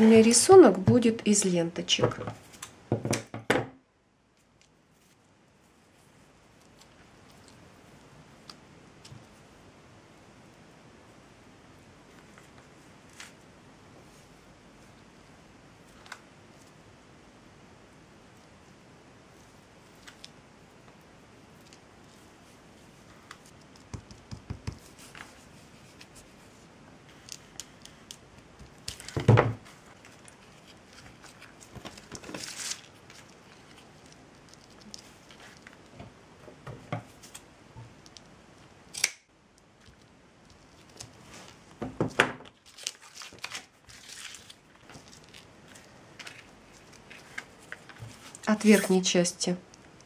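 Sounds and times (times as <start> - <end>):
soft rustles: 4.4 - 9.5, 24.8 - 36.2, 39.8 - 41.8, 42.6 - 49.2.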